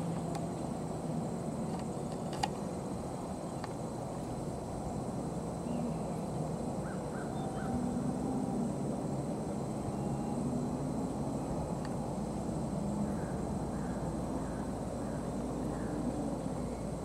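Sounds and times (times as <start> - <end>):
faint hum: 0.0 - 17.0
distant bird calling: 5.6 - 8.6, 12.8 - 17.0.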